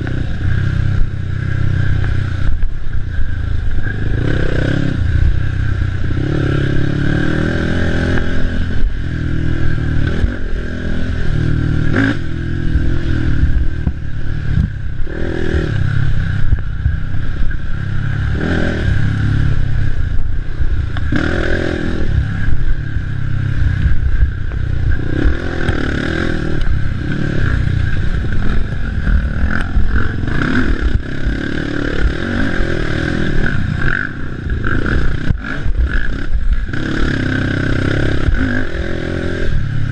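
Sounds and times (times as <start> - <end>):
atv engine revving: 0.0 - 39.9
vehicle rattling over bumps: 0.0 - 39.9.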